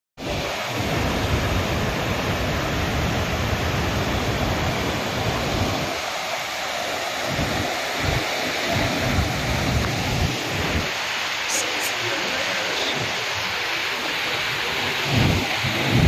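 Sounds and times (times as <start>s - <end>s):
flood water rushing: 0.2s - 16.0s
wind buffeting microphone: 7.2s - 11.0s, 14.3s - 16.0s.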